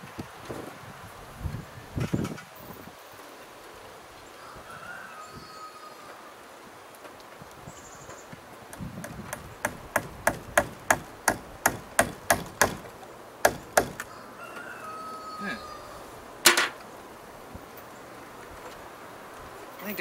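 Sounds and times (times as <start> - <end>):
hammer striking wooden post: 8.8 - 14.1, 16.5 - 16.8.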